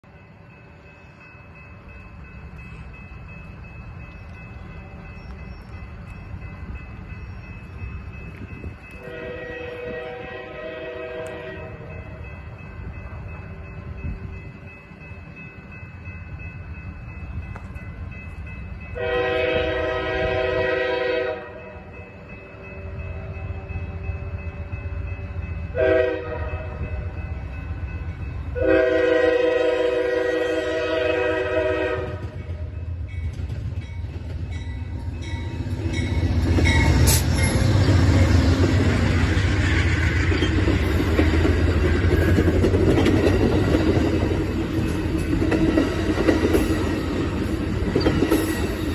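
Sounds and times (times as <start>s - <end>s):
train rumble: 0.0s - 48.9s
train horn blasts: 9.0s - 12.0s, 18.9s - 21.9s, 25.7s - 27.2s, 28.5s - 32.6s.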